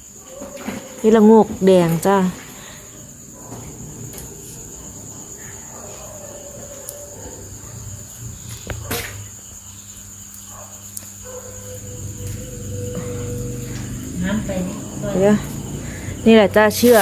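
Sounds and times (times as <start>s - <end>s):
insects chirring: 0.0s - 17.0s
low hum: 11.6s - 16.3s.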